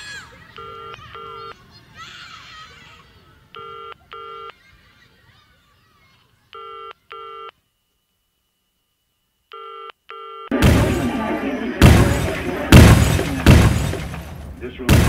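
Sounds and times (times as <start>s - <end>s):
telephone ringing tone: 0.6s - 1.6s, 3.6s - 4.6s, 6.6s - 7.6s, 9.5s - 10.6s.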